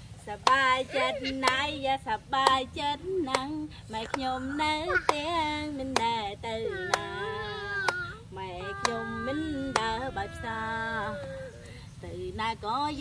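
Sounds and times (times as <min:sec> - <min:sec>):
high voice singing: 0:00.6 - 0:01.9, 0:04.0 - 0:11.8.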